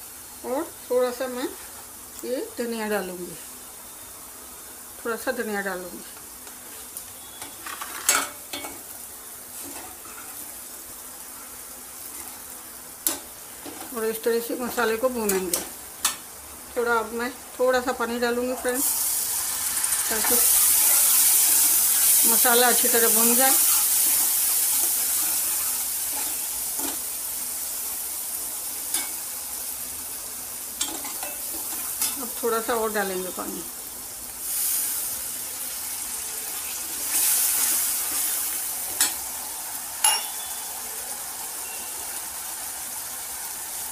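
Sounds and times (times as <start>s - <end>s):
food sizzling in hot oil: 0.0s - 43.9s
ladle stirring and scraping pan: 9.6s - 10.5s
sharp metal clinks: 40.0s - 40.8s.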